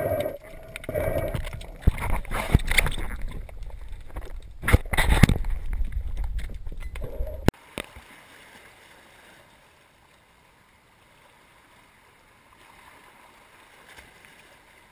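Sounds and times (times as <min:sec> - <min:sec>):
underwater low rumble: 0:00.0 - 0:07.5.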